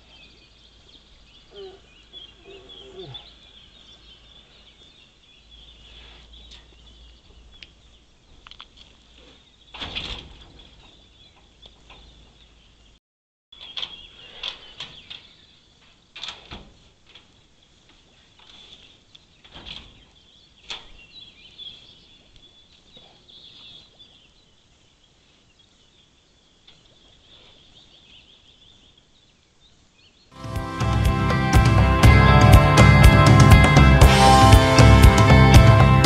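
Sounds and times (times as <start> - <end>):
loud music: 30.4 - 36.0.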